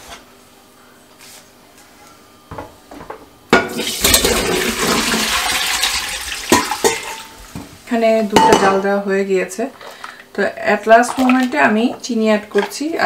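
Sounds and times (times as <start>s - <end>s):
pot clinking: 3.6s - 7.4s.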